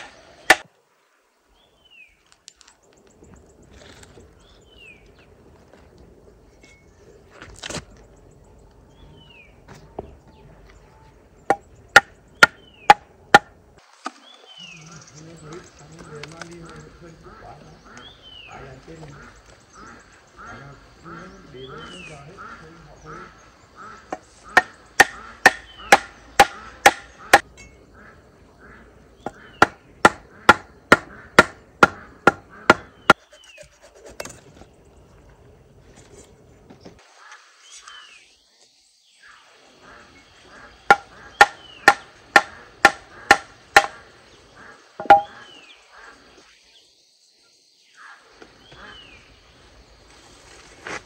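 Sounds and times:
blade chopping on wood: 0.0 - 0.7, 11.5 - 13.5, 24.1 - 27.4, 29.3 - 33.2, 40.9 - 44.0, 45.0 - 45.3.

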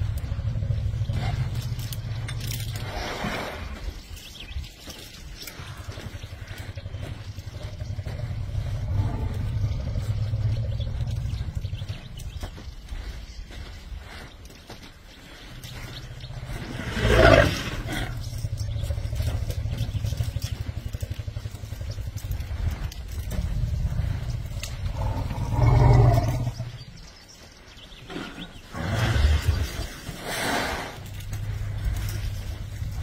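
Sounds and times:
vehicle engine idling hum: 0.0 - 2.9, 4.0 - 14.3, 17.8 - 27.8, 31.0 - 33.0.

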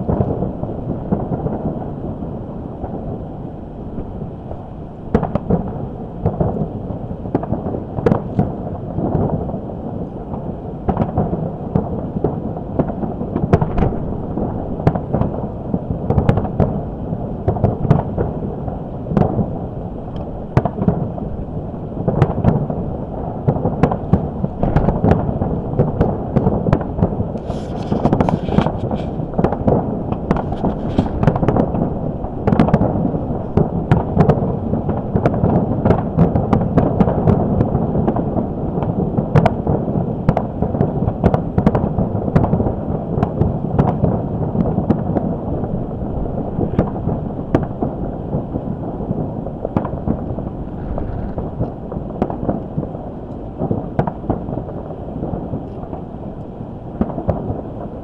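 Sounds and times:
fireworks booms and bangs: 0.0 - 4.4, 5.1 - 56.2, 56.9 - 58.0
wind blowing across microphone: 0.0 - 58.0
high hissing crackle: 24.2 - 32.2, 50.4 - 52.0.

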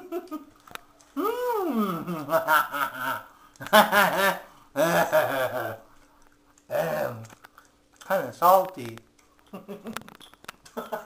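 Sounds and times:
man laughing: 0.0 - 0.6, 1.2 - 5.9, 9.5 - 10.1, 10.7 - 11.0.

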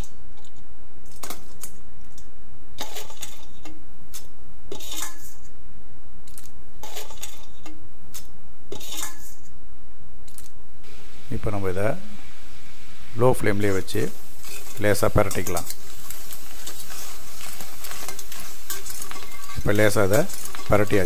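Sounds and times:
crab shells clattering in metal pan: 14.4 - 21.0.

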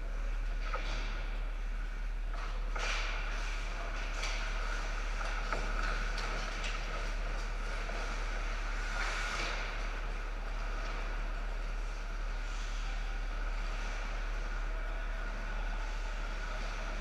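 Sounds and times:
low steady hum: 0.0 - 17.0
skates on ice: 2.5 - 14.8.

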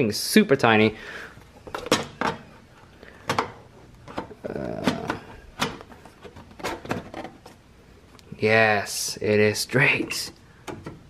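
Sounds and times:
knocks and clicks of parts: 3.2 - 7.5, 10.6 - 11.0.

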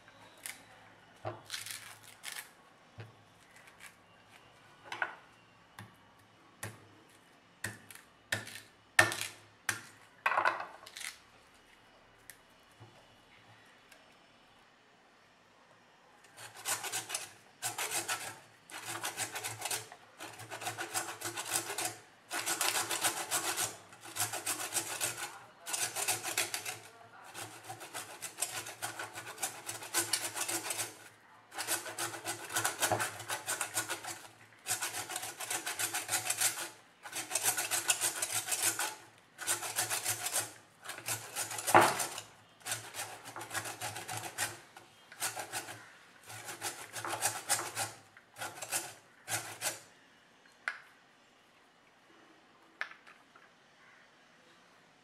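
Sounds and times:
coconut rasping on a grater: 16.3 - 49.9.

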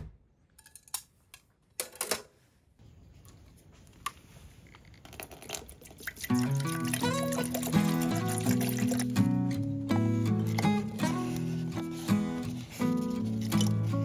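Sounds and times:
small objects clicking and knocking: 4.7 - 6.1
background music: 6.4 - 14.0.

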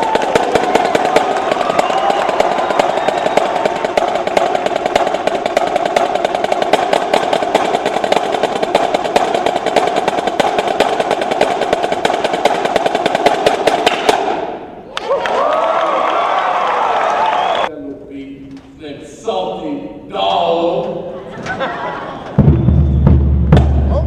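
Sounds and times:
marching snare drums: 0.0 - 14.6, 22.3 - 24.0.

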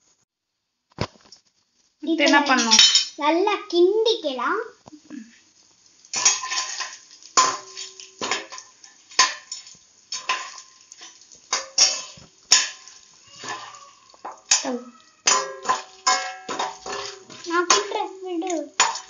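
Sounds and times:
spoon scraping metal pan: 6.1 - 19.0.

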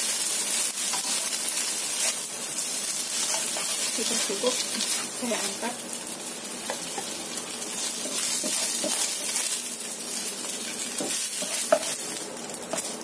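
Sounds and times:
egg sizzling in hot oil: 0.0 - 13.0
spatula scraping a wok: 0.8 - 5.3, 6.6 - 13.0.

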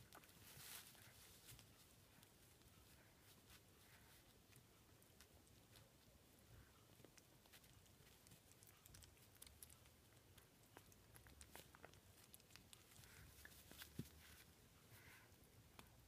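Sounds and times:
puppy chewing a stick: 0.0 - 14.9.

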